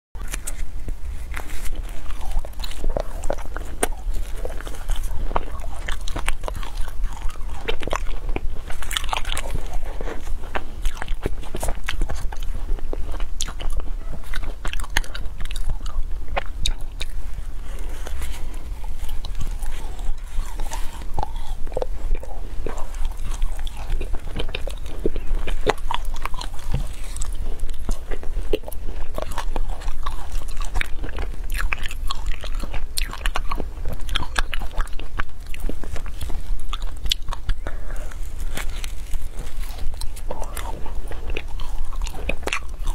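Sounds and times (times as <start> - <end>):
ice being bitten and chewed: 0.2 - 42.9
low hum: 0.2 - 42.9.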